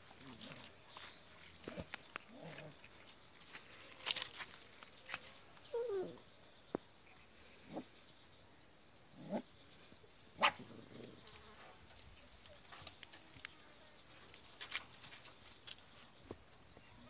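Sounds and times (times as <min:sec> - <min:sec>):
rustles on dry ground: 0:00.0 - 0:06.2, 0:09.8 - 0:17.0
puppies whining: 0:05.6 - 0:06.2.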